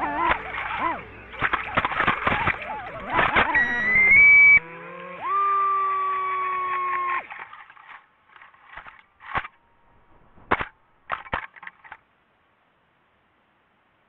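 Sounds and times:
drone striking branches: 0:00.0 - 0:05.1, 0:08.7 - 0:12.0.

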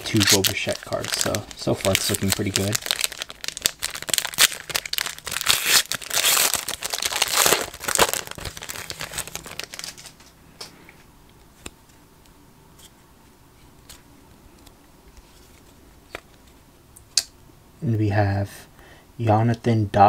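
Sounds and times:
foil wrapper crinkling and tearing: 0:00.0 - 0:10.3.

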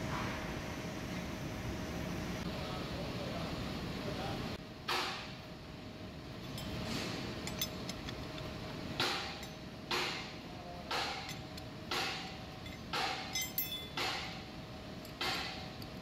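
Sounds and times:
steady machine hum: 0:00.0 - 0:16.0
spanner clinking on metal chuck: 0:06.4 - 0:06.8, 0:07.4 - 0:08.5, 0:12.6 - 0:14.3.

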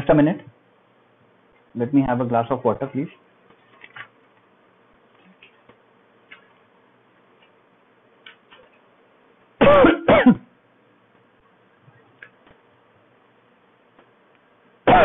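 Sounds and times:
man coughing: 0:09.6 - 0:10.5.

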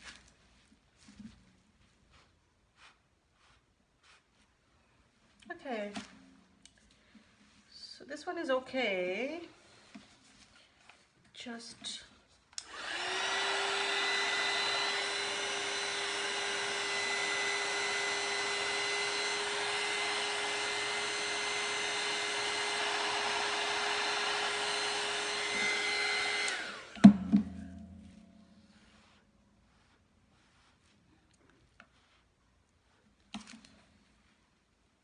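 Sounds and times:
heat gun blowing: 0:12.6 - 0:29.2.

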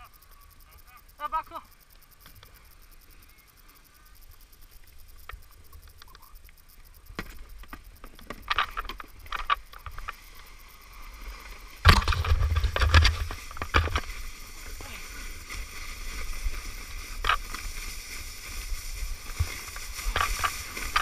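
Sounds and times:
plastic sled sliding on snow: 0:08.3 - 0:21.0.

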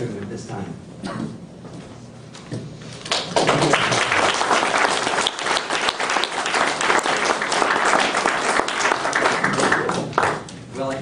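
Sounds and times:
audience applauding: 0:03.0 - 0:10.6.

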